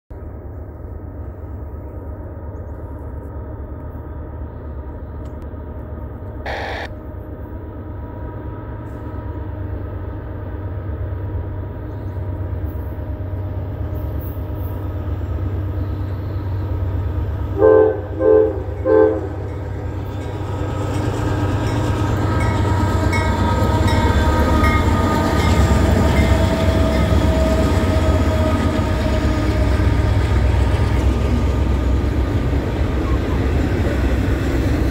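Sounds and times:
diesel locomotive engines rumbling: 0.1s - 34.9s
train horn blasts: 17.5s - 19.7s.

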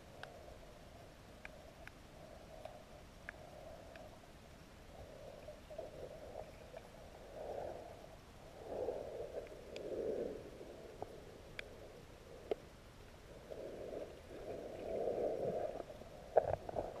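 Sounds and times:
faint sharp clicks: 0.1s - 0.5s, 1.3s - 4.2s, 9.3s - 10.0s, 11.0s - 11.8s, 12.4s - 12.7s.

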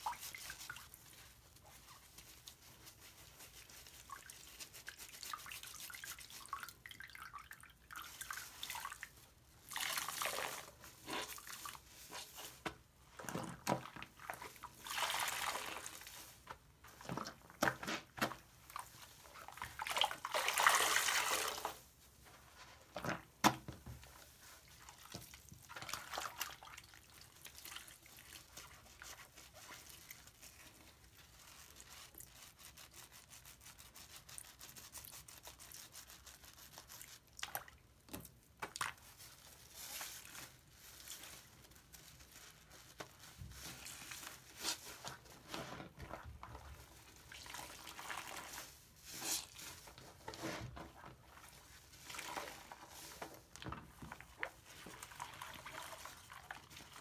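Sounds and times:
soapy sponge squelching: 0.0s - 23.3s, 24.0s - 57.0s.

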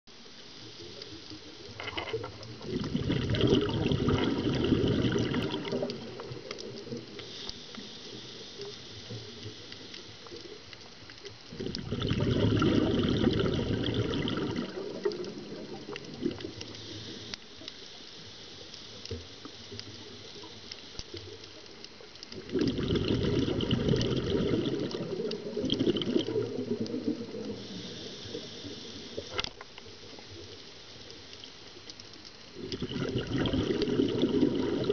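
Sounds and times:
faint crackling: 0.1s - 34.9s
diver exhaling bubbles: 1.7s - 6.5s, 11.5s - 16.9s, 22.4s - 28.6s, 32.6s - 34.9s.

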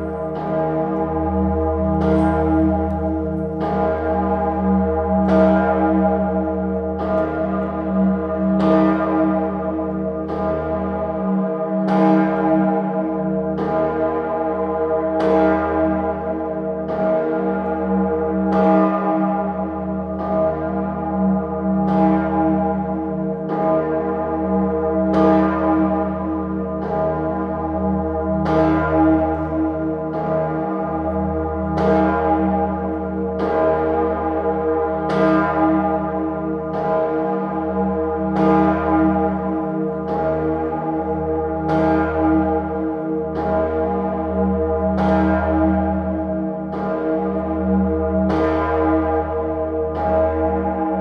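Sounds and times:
deep bell hum: 0.0s - 8.8s
large bell striking: 0.0s - 51.0s.

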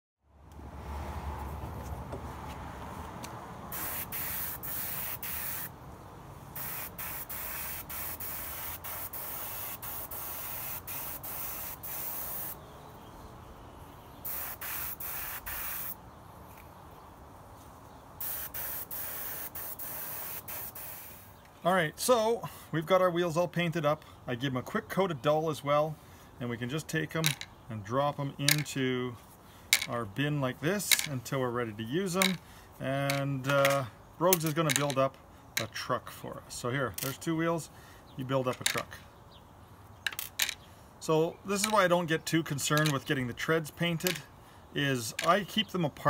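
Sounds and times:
spray paint can hissing: 3.7s - 5.7s, 6.6s - 12.6s, 14.2s - 16.0s, 18.2s - 21.4s.

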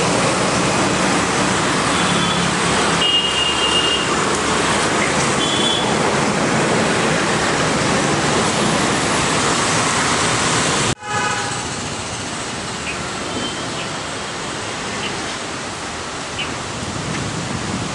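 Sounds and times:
road traffic: 0.0s - 17.9s
vehicle horn toots: 2.0s - 4.1s, 5.4s - 5.9s, 11.0s - 11.7s
storm wind rushing: 16.6s - 17.9s.

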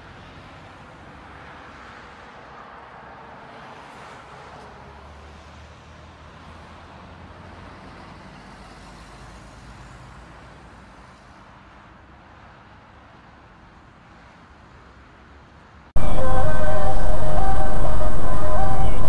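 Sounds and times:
street noise: 16.0s - 19.0s.

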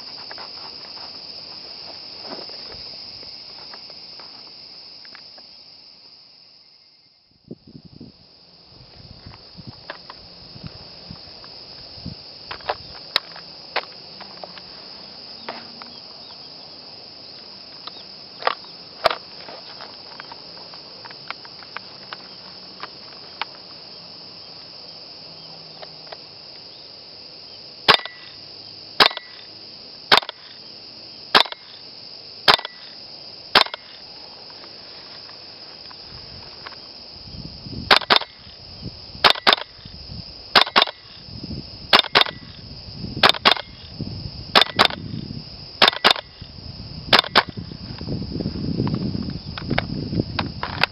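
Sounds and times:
insect chorus: 0.0s - 50.9s
airsoft rifle shots: 27.9s - 28.4s, 29.0s - 29.4s, 30.1s - 30.5s, 31.3s - 31.7s, 32.5s - 32.9s, 33.5s - 34.0s, 37.9s - 38.4s, 39.2s - 39.8s, 40.5s - 41.1s, 41.9s - 42.5s, 43.2s - 43.8s, 44.5s - 45.0s, 45.8s - 46.4s, 47.1s - 47.6s.

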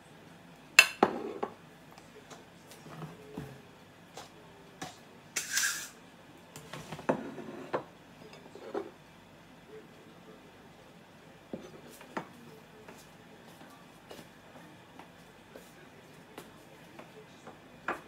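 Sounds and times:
ceramic bowls knocking and clinking: 0.8s - 1.6s.

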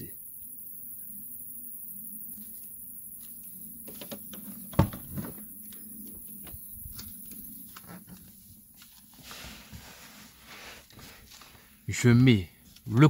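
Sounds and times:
loud thump: 4.7s - 5.4s.

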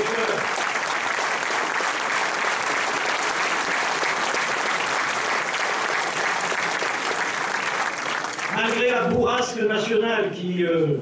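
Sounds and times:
audience applauding: 0.0s - 9.1s.

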